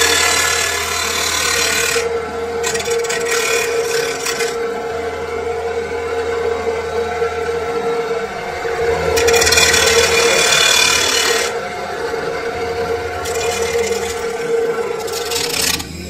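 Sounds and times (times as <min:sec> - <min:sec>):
cut-off saw whining: 0:00.0 - 0:16.0
saw wheel grinding steel: 0:00.0 - 0:16.0.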